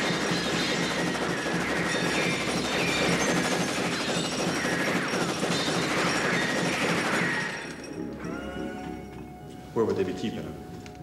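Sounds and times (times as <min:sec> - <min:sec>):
rapid gunfire: 0:00.0 - 0:07.9.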